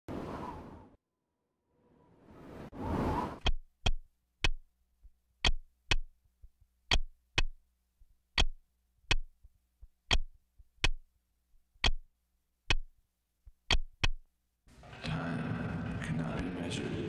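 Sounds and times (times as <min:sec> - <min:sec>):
clock ticking: 0:03.4 - 0:07.6, 0:08.2 - 0:11.1, 0:11.8 - 0:12.1, 0:12.7 - 0:14.3.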